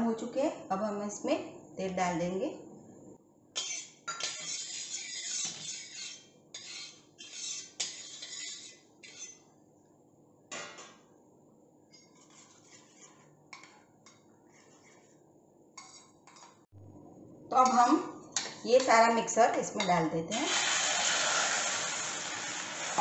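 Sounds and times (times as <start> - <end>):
spatula scraping iron griddle: 3.6 - 9.4, 12.0 - 13.7, 14.5 - 15.2
oil sizzling: 20.3 - 23.0.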